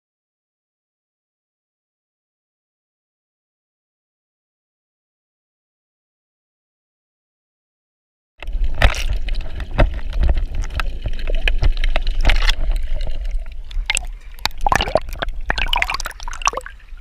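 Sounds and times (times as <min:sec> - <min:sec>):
small crackling pops: 0:08.4 - 0:15.8
water gurgling and sloshing: 0:08.4 - 0:17.0.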